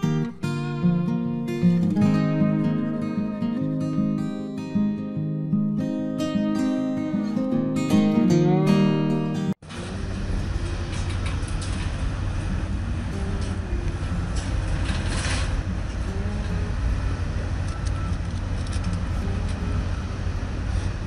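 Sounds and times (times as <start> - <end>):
outdoor rumble and hiss: 9.6 - 21.0.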